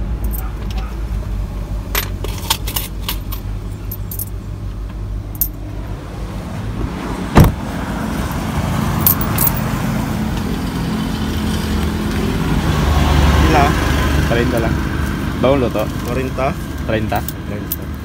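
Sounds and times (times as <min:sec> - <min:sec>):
roadside outdoor noise: 0:00.0 - 0:18.0
car door slamming: 0:06.8 - 0:07.7.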